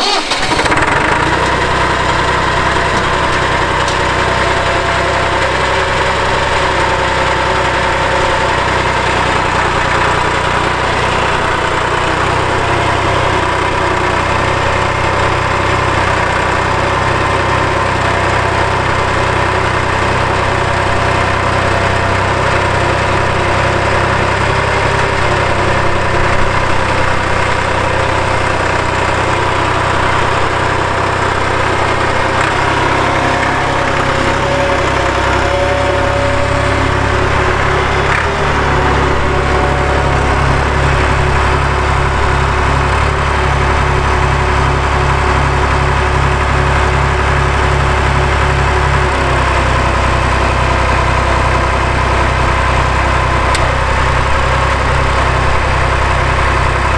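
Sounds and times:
tractor diesel engine idling: 0:00.0 - 0:56.9.

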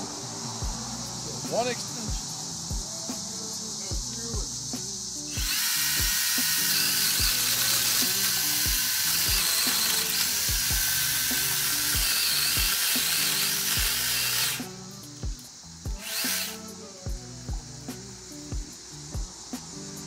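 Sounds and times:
music with a steady beat: 0:00.0 - 0:20.0
chainsaw cutting a tree limb: 0:05.3 - 0:14.9, 0:16.0 - 0:16.7.

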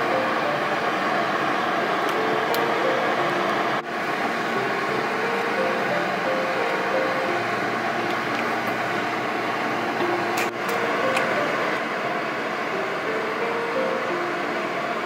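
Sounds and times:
soft background music: 0:02.1 - 0:11.8.

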